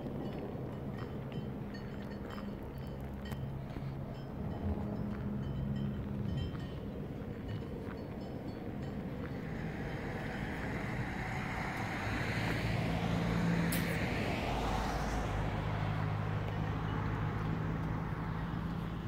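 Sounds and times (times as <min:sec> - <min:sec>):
low engine hum: 0:00.0 - 0:19.0
vehicle passing close by: 0:00.0 - 0:19.0.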